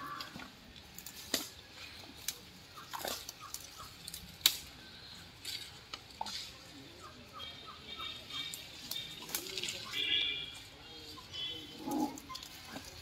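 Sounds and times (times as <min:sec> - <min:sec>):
birds chirping: 0:02.6 - 0:04.2, 0:06.8 - 0:13.0.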